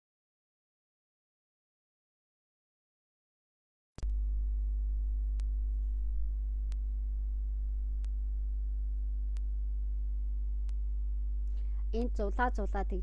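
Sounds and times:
loud low electrical hum: 4.0 - 13.0.

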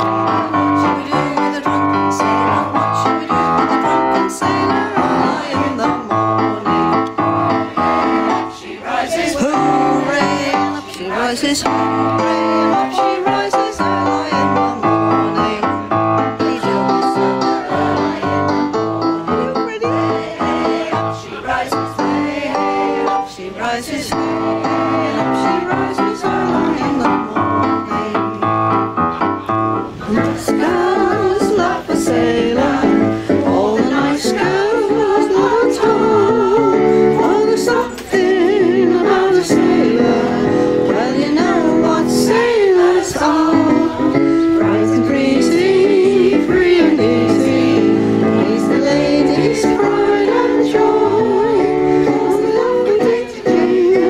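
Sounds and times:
electric keyboard: 0.0 - 54.0
mixed choir singing: 0.0 - 54.0.

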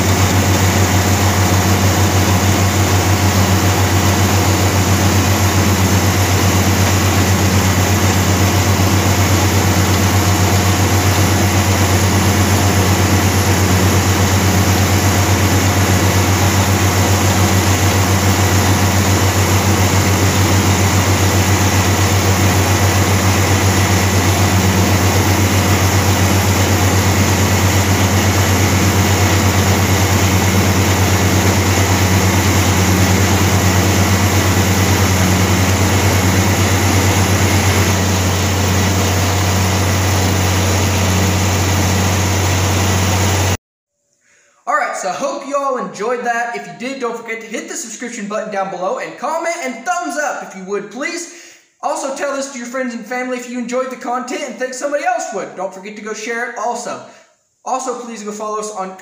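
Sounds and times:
manure spreader beaters throwing: 0.0 - 43.6
tractor diesel engine droning: 0.0 - 43.6.

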